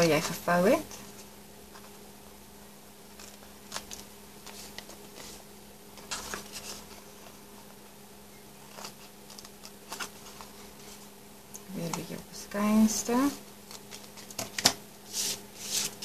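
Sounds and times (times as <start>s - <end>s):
faint steady hum: 0.0s - 16.0s
paper rustling: 3.1s - 7.8s, 8.6s - 11.1s, 13.6s - 16.0s.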